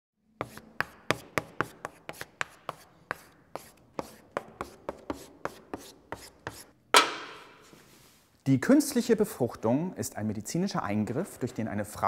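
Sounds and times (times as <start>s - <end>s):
chalk writing on blackboard: 0.4s - 6.8s.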